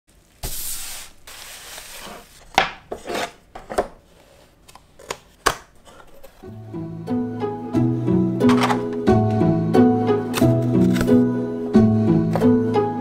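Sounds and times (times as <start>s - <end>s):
picture frame clicks and knocks: 8.4s - 9.0s.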